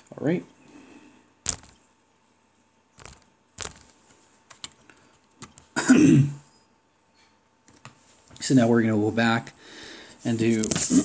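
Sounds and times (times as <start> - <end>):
sharp clicks and taps: 1.5 - 1.8, 3.0 - 3.9.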